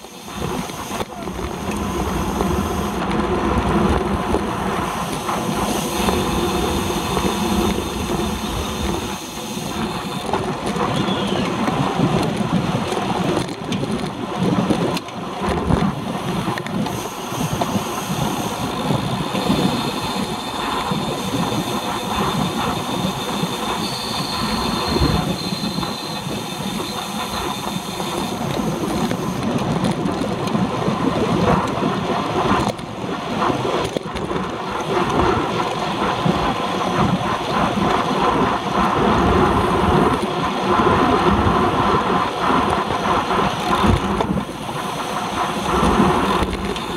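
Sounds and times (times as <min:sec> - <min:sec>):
wind rushing: 0:00.2 - 0:13.4.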